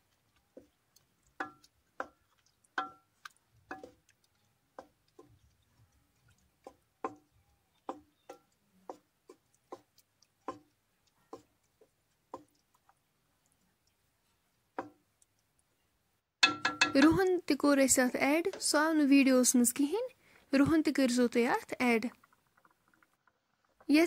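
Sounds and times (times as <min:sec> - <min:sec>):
spatula knocking metal pot: 0:01.4 - 0:03.1, 0:03.7 - 0:04.0, 0:06.6 - 0:07.3, 0:07.9 - 0:10.7, 0:14.8 - 0:15.0, 0:16.4 - 0:17.3, 0:18.4 - 0:18.8.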